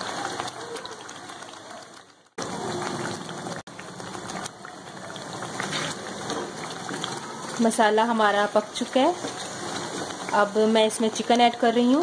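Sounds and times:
masala sizzling in frying pan: 0:00.0 - 0:12.0.

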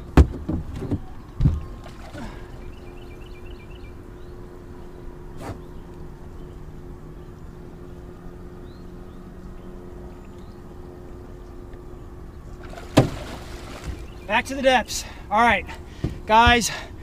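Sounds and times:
low mechanical hum: 0:00.0 - 0:17.0
bird chirps: 0:02.5 - 0:12.6, 0:13.7 - 0:15.0
fish splashing in water: 0:12.6 - 0:14.3.

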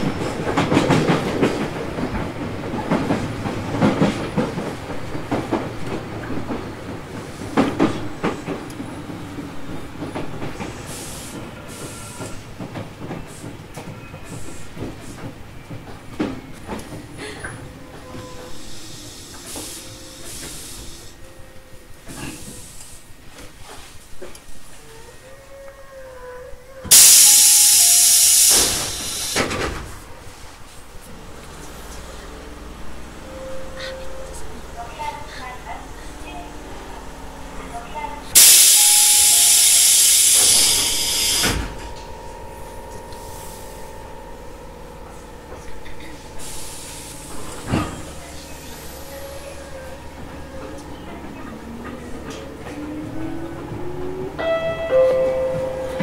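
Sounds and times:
train car low rumble: 0:00.0 - 0:56.0
compressed air hissing: 0:26.9 - 0:29.5, 0:38.4 - 0:41.8, 0:46.4 - 0:48.2.

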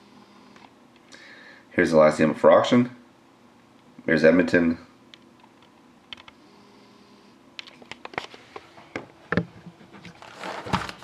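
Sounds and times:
cardboard rustle: 0:09.7 - 0:11.0.

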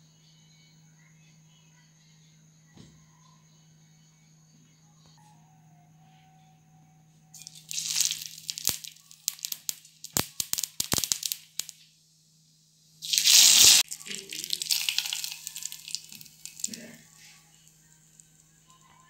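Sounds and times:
loud burst of sizzling: 0:07.4 - 0:11.9, 0:13.0 - 0:17.2
seeds crackling in hot oil: 0:07.4 - 0:11.9, 0:13.0 - 0:19.0.

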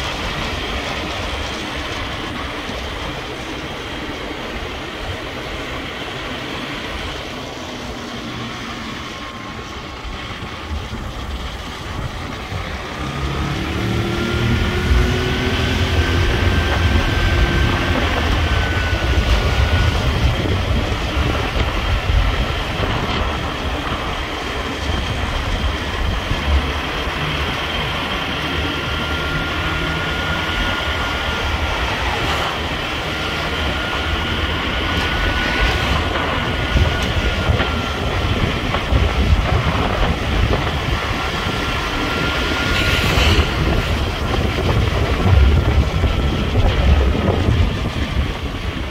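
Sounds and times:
engine and road rumble: 0:00.0 - 0:48.9.

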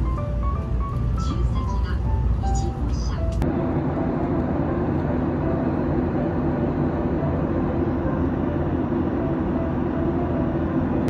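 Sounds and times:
vehicle cabin rumble: 0:00.0 - 0:11.0.

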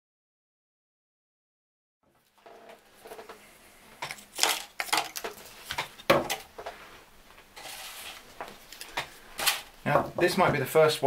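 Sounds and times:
plastic bottles clattering on table: 0:04.0 - 0:06.7
scraping rustle: 0:07.6 - 0:09.7.

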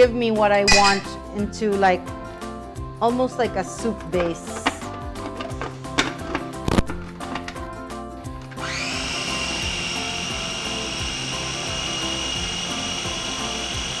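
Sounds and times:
food chopper motor whine: 0:08.6 - 0:14.0.

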